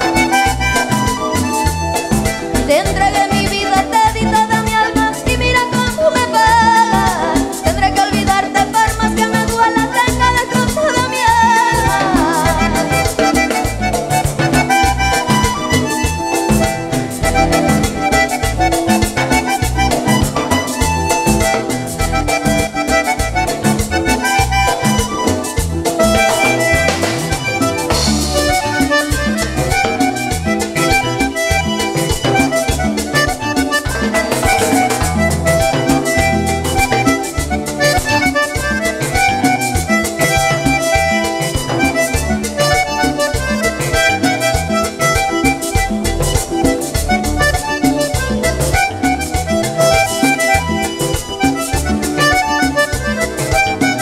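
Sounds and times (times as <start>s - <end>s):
button accordion: 0.0s - 54.0s
live band dance music: 0.0s - 54.0s.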